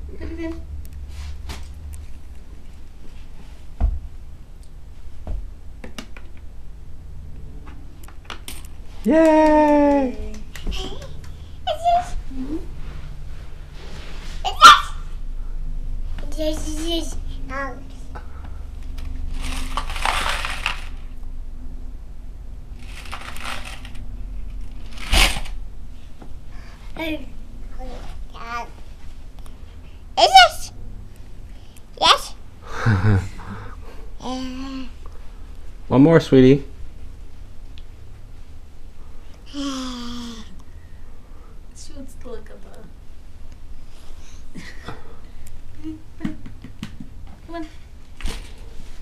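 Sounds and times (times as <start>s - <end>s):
coins rattling in a jar: 19.3s - 21.0s, 22.8s - 24.0s.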